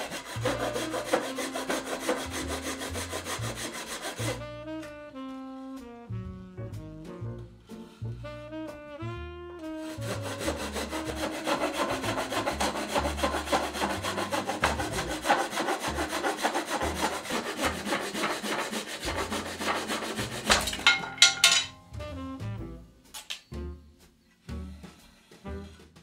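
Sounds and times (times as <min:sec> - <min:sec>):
hand saw rasping through wood: 0:00.0 - 0:04.5, 0:09.7 - 0:21.7.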